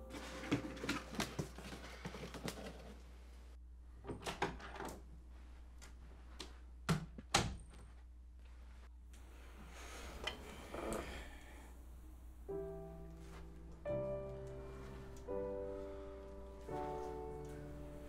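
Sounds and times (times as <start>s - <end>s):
cardboard box rustling: 0.1s - 3.0s.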